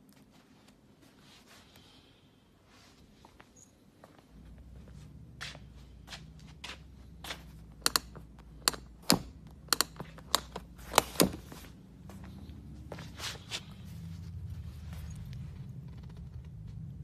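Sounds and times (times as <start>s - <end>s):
steady low hum: 0.0s - 17.0s
sharp taps and clicks: 7.8s - 11.2s.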